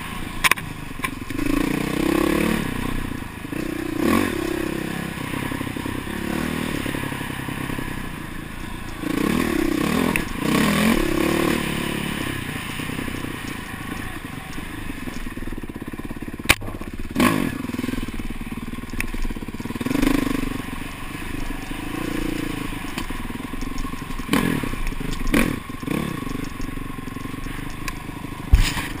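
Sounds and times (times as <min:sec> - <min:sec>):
dirt bike engine revving: 0:00.0 - 0:29.0
knocks and clatter from bike: 0:00.4 - 0:01.6, 0:21.4 - 0:29.0.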